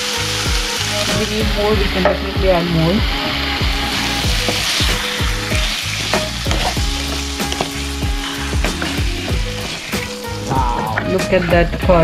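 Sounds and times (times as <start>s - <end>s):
curry sizzling in a pan: 0.0s - 12.0s
utensil scraping a pan: 3.2s - 10.4s.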